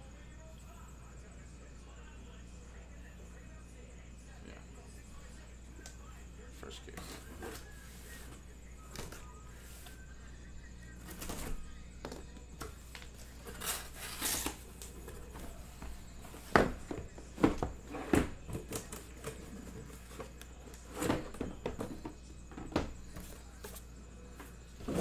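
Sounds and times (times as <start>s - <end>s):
boxes bumping and sliding: 13.4s - 23.8s.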